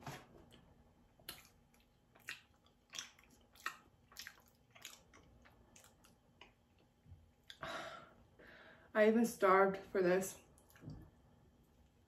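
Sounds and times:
wet chewing mouth sounds: 1.2 - 7.6.

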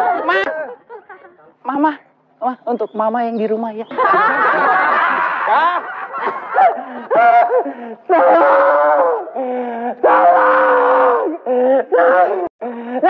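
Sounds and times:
man wailing: 0.0 - 0.8, 6.6 - 12.5.

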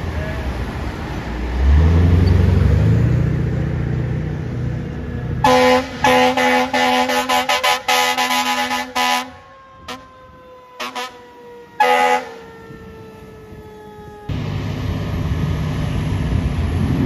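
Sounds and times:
vehicle engine rumbling: 0.0 - 17.0
fire engine air horn blasts: 5.4 - 14.2.

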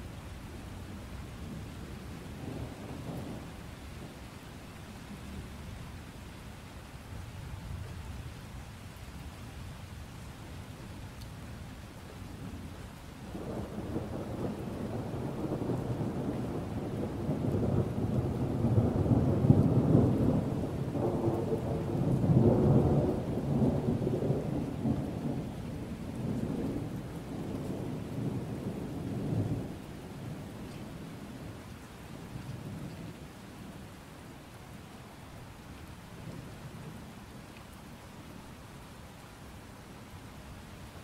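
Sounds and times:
steady rain: 0.0 - 41.0
rolling thunder rumble: 13.3 - 31.6.

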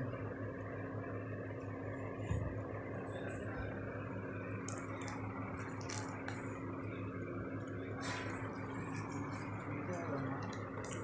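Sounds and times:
low background hum: 0.0 - 11.0
packaging rustles and clicks: 4.7 - 6.5, 10.4 - 11.0.

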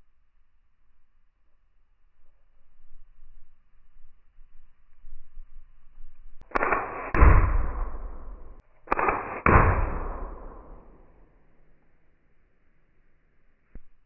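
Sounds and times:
bb gun shots: 6.4 - 11.2.

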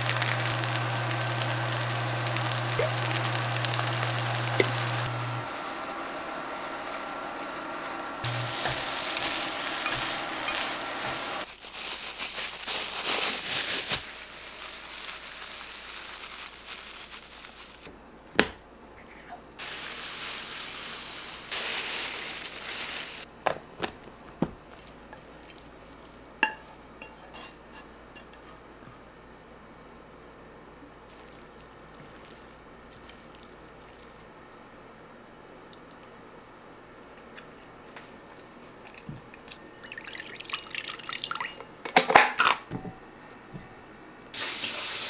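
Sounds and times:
chopsticks stirring food in pan: 6.4 - 11.5
spatula scraping pan: 26.5 - 28.6.

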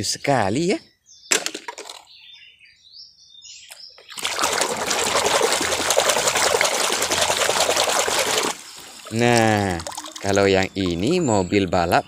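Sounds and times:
hand scrubbing in water basin: 4.1 - 11.2.

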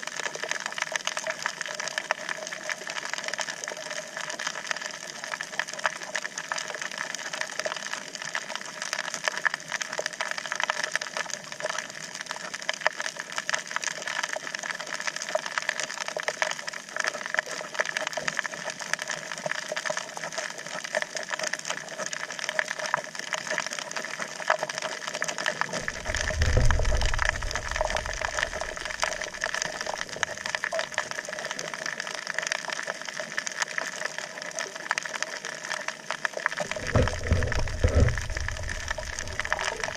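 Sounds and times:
underwater crackle of tiny clicks: 0.0 - 39.9
low rumble: 25.8 - 30.5, 36.7 - 39.9.

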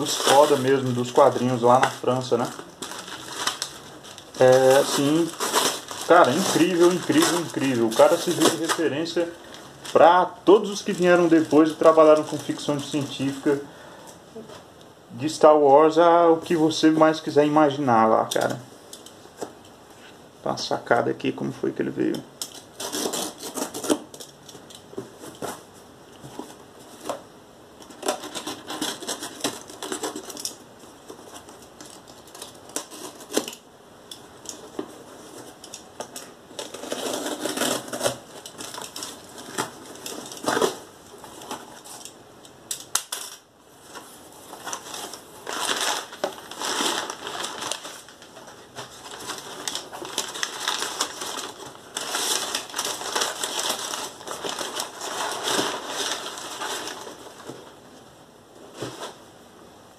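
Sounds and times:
packing paper rustling: 0.0 - 13.7, 27.8 - 33.6, 34.3 - 42.2, 42.8 - 57.8
packing tape peeled and torn: 2.4 - 9.1, 22.4 - 24.8, 31.5 - 33.6, 35.5 - 40.8, 49.1 - 57.2.

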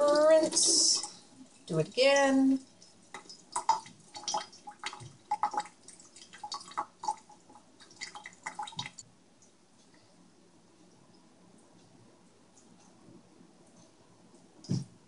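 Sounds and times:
water splashing into steel sink: 3.1 - 9.0.

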